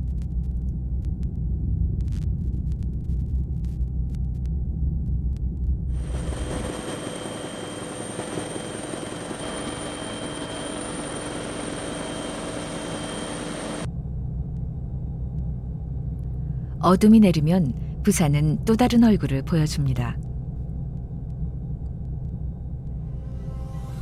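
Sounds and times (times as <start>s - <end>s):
low rumble: 0.0s - 6.7s, 13.8s - 24.0s
helicopter rotor and engine whine: 6.0s - 14.0s.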